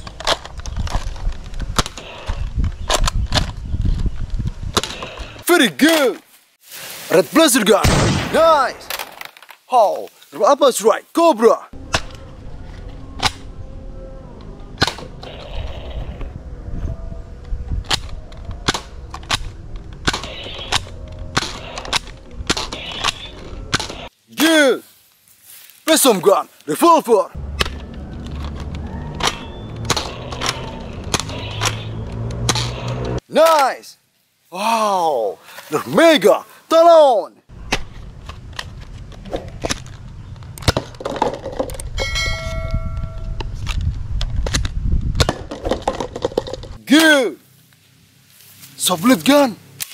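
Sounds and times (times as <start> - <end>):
bright ringing tone: 42.0 - 43.4.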